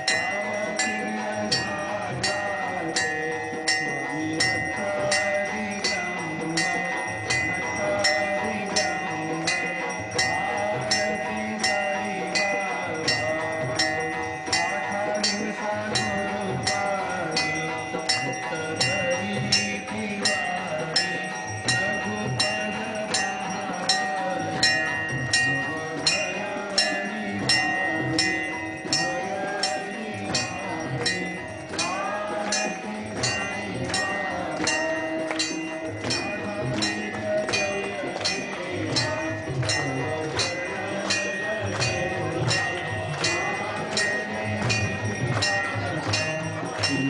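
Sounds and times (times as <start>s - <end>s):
devotional music: 0.0s - 47.0s
held ringing tones: 0.0s - 47.0s
sharp percussive strikes: 0.0s - 47.0s.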